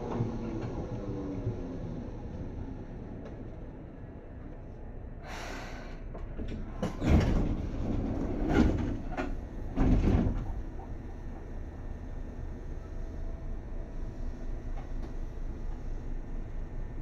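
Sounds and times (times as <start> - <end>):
train door air hiss: 5.2 - 6.1
train doors slamming shut: 6.5 - 10.8.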